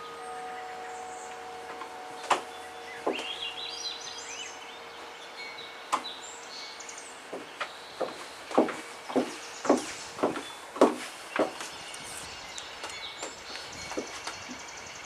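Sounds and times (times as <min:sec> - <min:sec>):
birds chirping and singing: 0:00.0 - 0:15.0
high heels on wooden boards: 0:03.0 - 0:03.3, 0:07.3 - 0:11.8.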